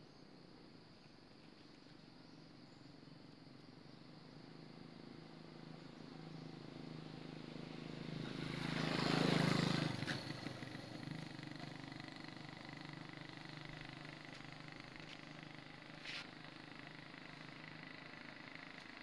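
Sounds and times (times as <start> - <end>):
motor vehicle passing: 6.4 - 19.0.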